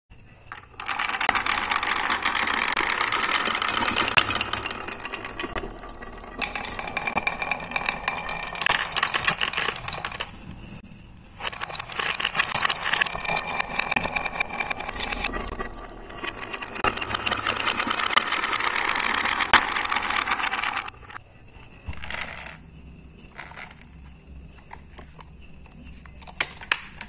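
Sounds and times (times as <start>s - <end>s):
marbles clattering down wooden run: 0.5s - 10.4s, 11.4s - 21.2s, 22.0s - 22.6s, 23.3s - 24.8s.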